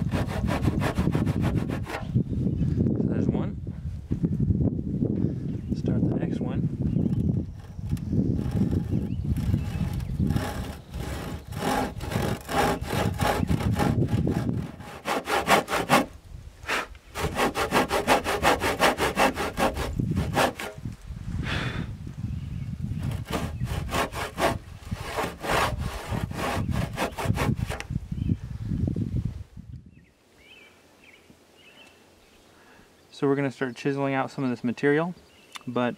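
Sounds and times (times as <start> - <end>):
handsaw rasping through wood: 0.0 - 2.1, 7.1 - 16.1, 16.7 - 20.8, 23.0 - 27.8.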